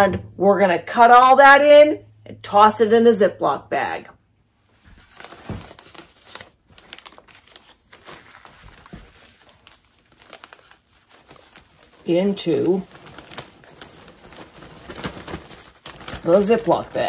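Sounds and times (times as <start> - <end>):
plastic bag crinkling: 5.0 - 17.0.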